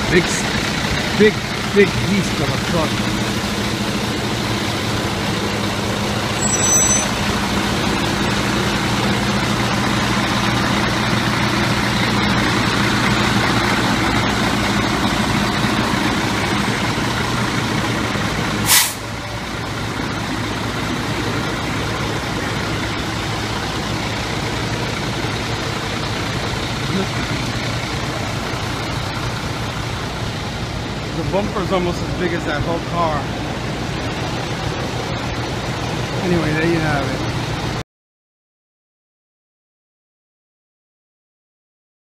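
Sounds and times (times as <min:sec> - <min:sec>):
diesel engine idling: 0:00.0 - 0:37.8
high squeal: 0:06.4 - 0:07.4
air brake hiss: 0:18.6 - 0:19.1.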